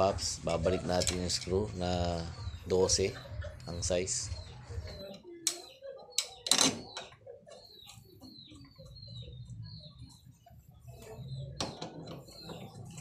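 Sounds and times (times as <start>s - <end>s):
small birds chirping: 0.0s - 13.0s
metal hand tools clanking: 0.5s - 1.6s.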